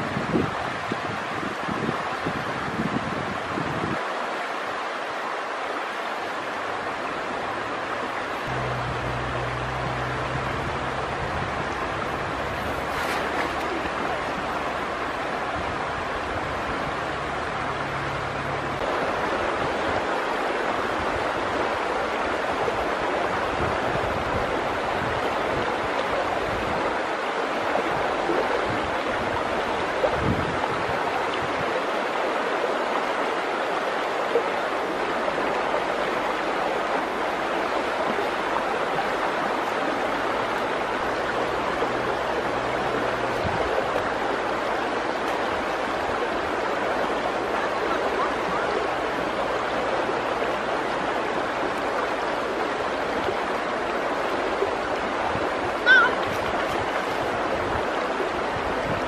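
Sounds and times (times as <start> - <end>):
river water rushing: 0.0 - 59.0
low thumps: 8.5 - 13.5.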